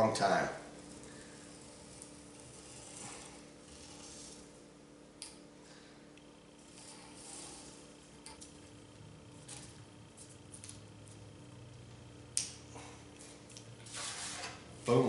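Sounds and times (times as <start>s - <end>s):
knife scraping through canvas: 1.2s - 4.5s, 6.6s - 7.9s.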